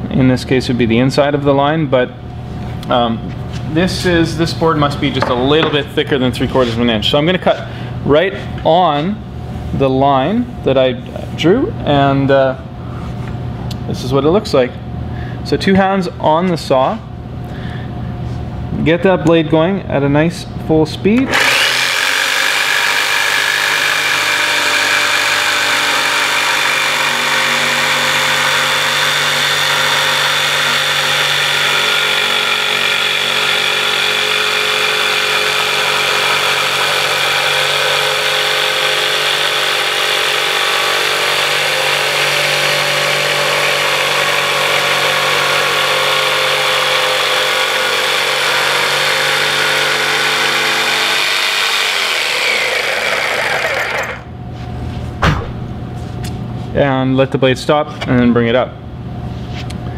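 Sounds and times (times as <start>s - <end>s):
jigsaw cutting wood: 21.3s - 54.2s.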